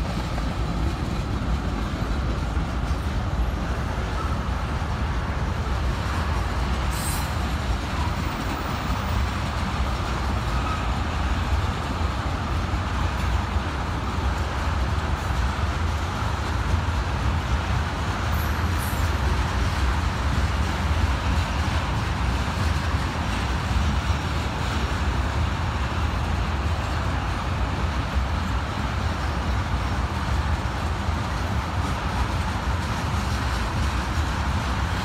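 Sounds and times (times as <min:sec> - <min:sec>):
freight train rolling past: 0:00.0 - 0:35.0.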